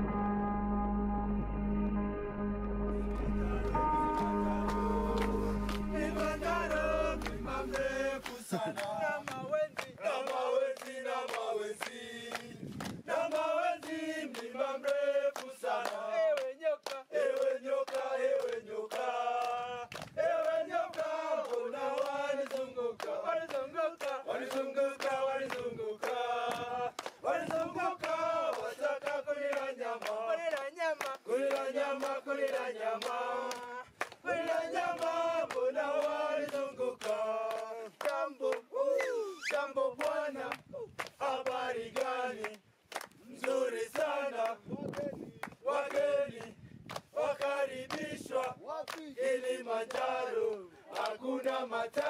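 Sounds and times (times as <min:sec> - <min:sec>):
background music: 0:00.0 - 0:08.2
group singing together: 0:02.9 - 0:38.9, 0:39.5 - 0:52.0
hands clapping in time: 0:03.0 - 0:49.1, 0:49.9 - 0:52.0.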